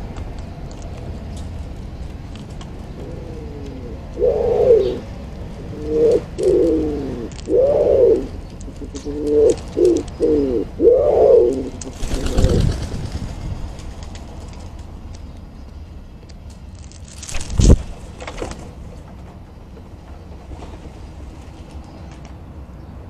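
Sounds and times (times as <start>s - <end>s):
wood pigeon cooing: 0.7s - 12.8s
wing flurry: 11.2s - 14.8s, 16.8s - 18.7s.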